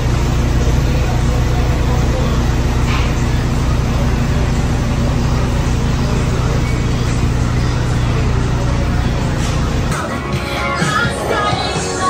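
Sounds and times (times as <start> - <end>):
loud low mechanical hum: 0.0 - 12.0.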